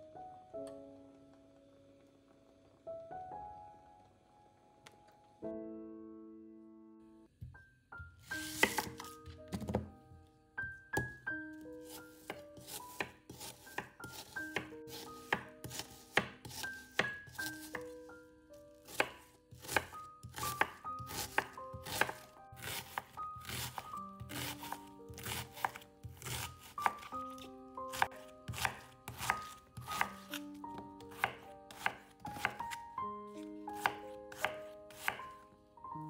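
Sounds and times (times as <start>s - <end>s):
soft melodic background music: 0.0s - 36.0s
knife chopping on cutting board: 8.4s - 9.9s, 11.8s - 17.9s, 18.9s - 32.8s, 33.4s - 35.3s.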